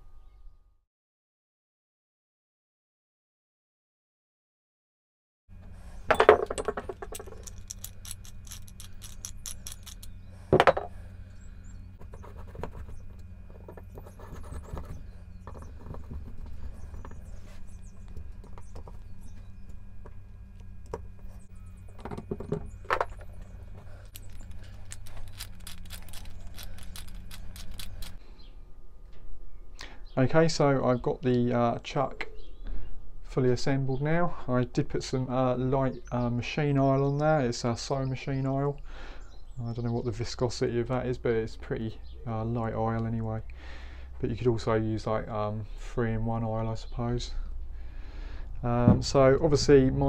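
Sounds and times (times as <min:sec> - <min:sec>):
steady low hum: 0:05.5 - 0:50.0
metal clinks scrapes and rattles: 0:06.1 - 0:10.9, 0:22.9 - 0:28.2.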